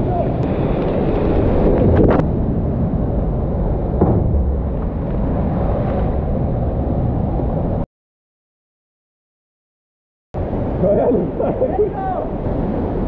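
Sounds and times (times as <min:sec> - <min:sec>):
sharp knock: 0:04.0 - 0:04.6.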